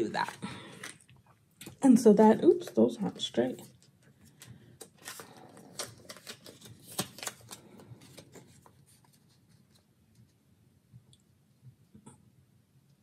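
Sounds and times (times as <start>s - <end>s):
paper rustling: 3.7s - 10.4s.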